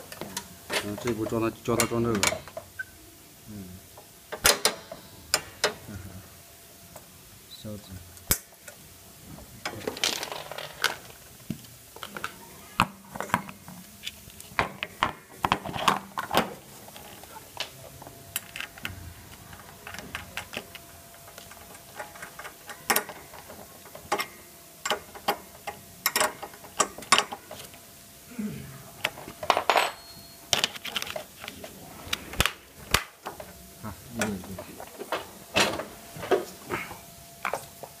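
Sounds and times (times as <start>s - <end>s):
metal parts clicking and rattling: 15.5s - 27.7s.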